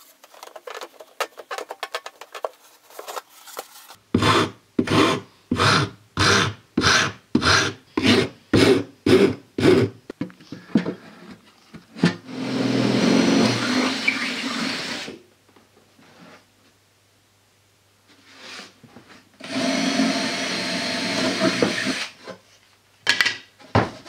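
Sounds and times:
hand file rasping on wood: 4.2s - 9.9s
cordless drill running: 12.3s - 15.2s, 19.4s - 22.1s.

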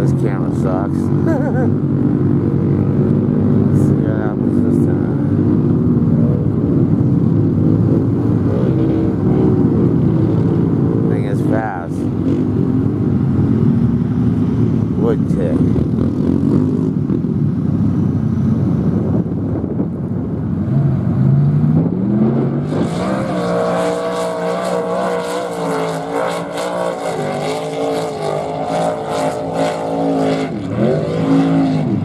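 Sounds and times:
truck engine revving: 20.7s - 32.0s.

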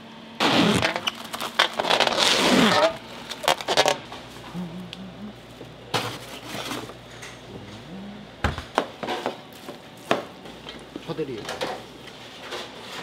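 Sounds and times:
cling film crinkling: 0.8s - 4.0s
refrigerator door shutting: 8.4s - 8.7s.

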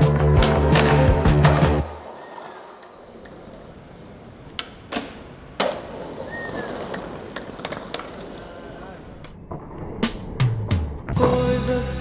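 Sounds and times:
skateboard clacks: 0.2s - 9.4s
skateboard wheels rolling on paving: 0.2s - 10.2s.

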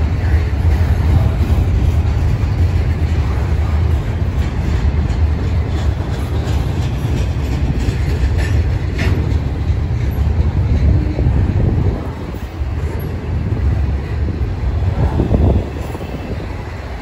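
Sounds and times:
freight train rumbling past: 0.0s - 17.0s
wheel clatter over rail joints: 0.0s - 17.0s.

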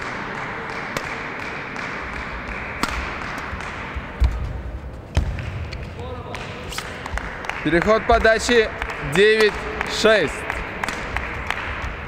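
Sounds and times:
racket striking shuttlecock: 0.0s - 4.5s, 6.5s - 7.3s.

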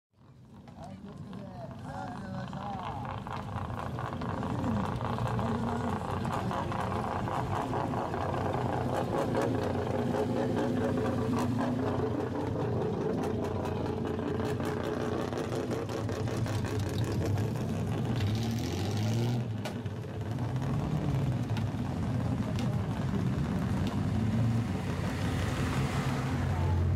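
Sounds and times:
car engines revving: 0.2s - 26.9s.

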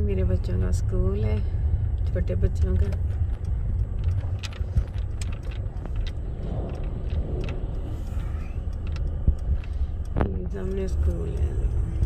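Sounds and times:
car engine and tyre rumble: 0.0s - 12.0s
light clicks and rattles: 0.0s - 12.0s
lorry passing: 3.1s - 10.2s.

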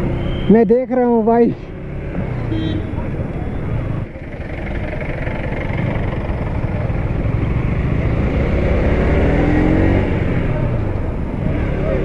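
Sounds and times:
motorcycle engine accelerating: 3.8s - 12.0s.

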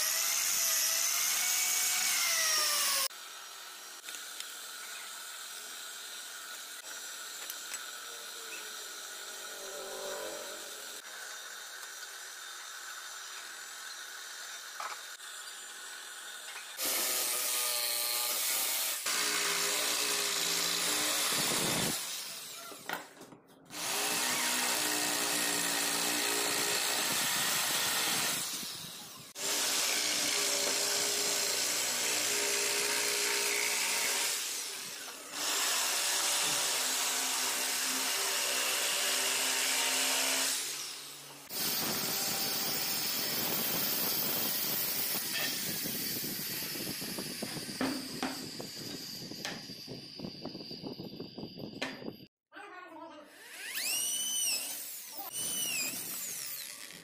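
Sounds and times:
jigsaw cutting wood: 0.0s - 22.9s, 23.7s - 49.8s, 53.3s - 57.0s
drill press boring into wood: 53.3s - 57.0s.

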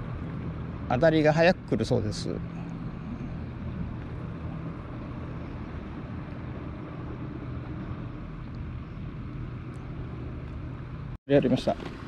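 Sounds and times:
distant engine humming: 0.0s - 12.0s.

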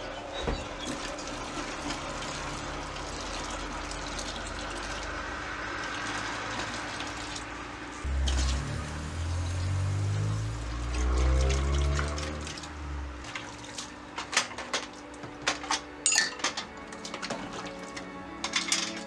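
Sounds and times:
water pouring and splashing: 0.0s - 19.0s
background music with deep bass: 8.0s - 19.0s.

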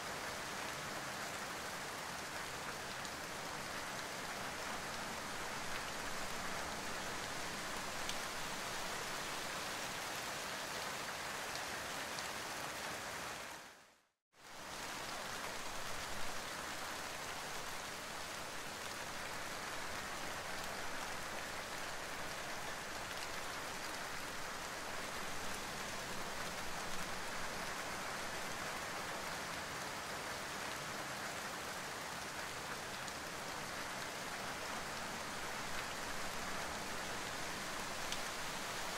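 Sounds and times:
rain pattering on leaves: 0.1s - 13.8s, 14.4s - 38.9s.

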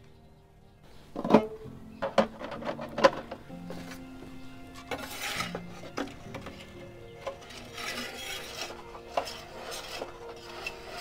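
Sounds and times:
metal peel scraping on stone: 4.8s - 11.0s.

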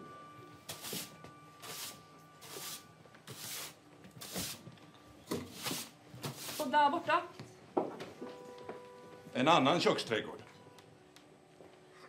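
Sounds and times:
faint held music tones: 0.0s - 12.0s
garden tool scraping ground: 0.7s - 4.6s, 5.4s - 6.8s.

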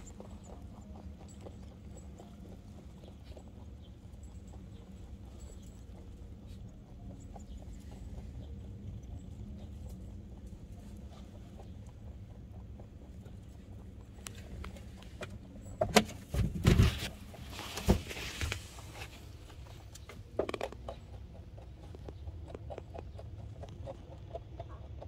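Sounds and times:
rabbits clicking and scuffing: 0.0s - 25.0s
loud bumps in hutch: 15.8s - 17.1s.

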